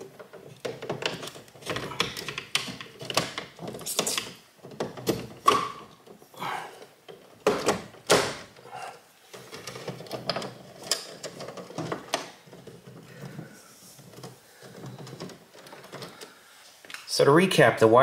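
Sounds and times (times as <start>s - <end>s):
sharp clicks and knocks: 0.0s - 6.2s, 9.3s - 17.1s.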